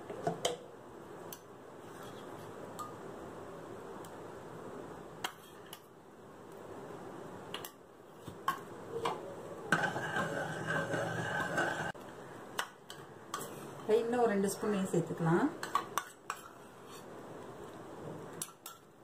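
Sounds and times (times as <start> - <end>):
metal spoon scraping pan: 9.7 - 12.0, 15.6 - 17.1.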